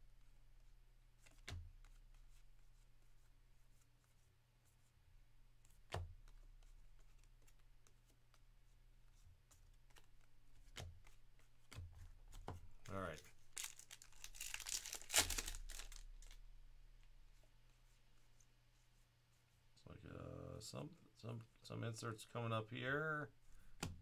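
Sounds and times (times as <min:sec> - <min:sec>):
cards flipped by hand: 0:01.2 - 0:02.5, 0:09.5 - 0:16.4.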